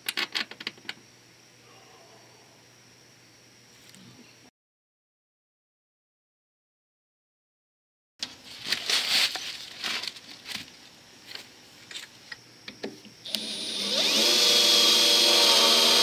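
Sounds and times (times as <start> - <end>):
circular saw motor whine: 13.2 - 16.0.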